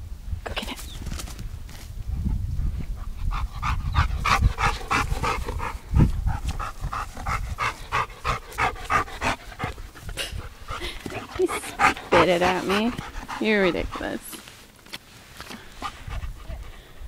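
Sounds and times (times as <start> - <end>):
dog panting rapidly: 2.9 - 14.4, 15.8 - 17.0.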